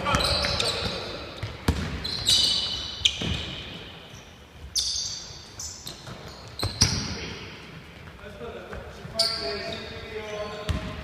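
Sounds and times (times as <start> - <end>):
basketball bouncing on wooden floor: 0.0 - 2.4, 10.7 - 11.0
sneaker squeaks: 0.0 - 11.0.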